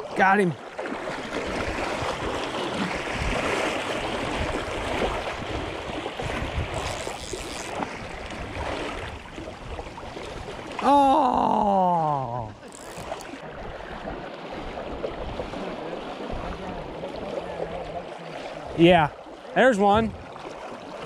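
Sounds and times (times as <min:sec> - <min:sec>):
fish splashing: 0:00.0 - 0:19.4
person calling out: 0:10.8 - 0:12.6.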